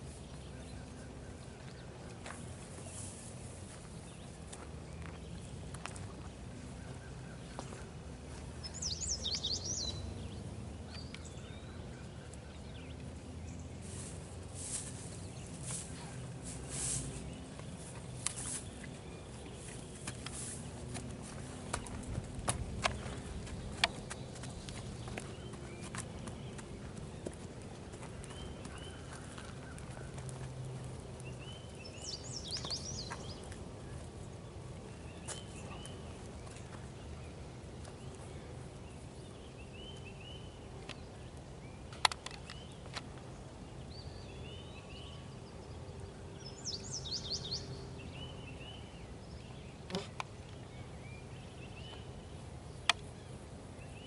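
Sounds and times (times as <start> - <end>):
low outdoor background noise: 0.0 - 54.0
songbird chirping: 0.0 - 54.0
bird chirping and singing: 8.6 - 10.2
hooves thudding on dirt: 13.9 - 38.4.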